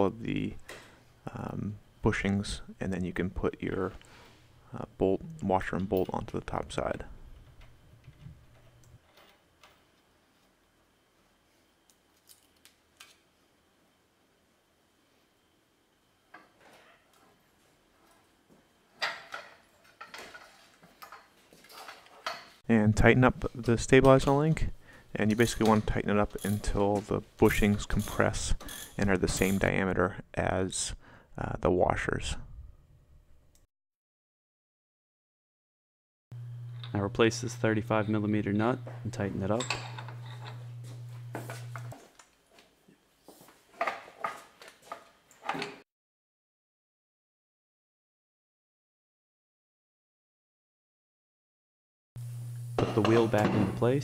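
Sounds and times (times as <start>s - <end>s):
steady low hum: 0.0s - 9.0s, 36.4s - 42.0s
metallic clinks and knocks: 25.4s - 26.8s, 39.6s - 42.0s.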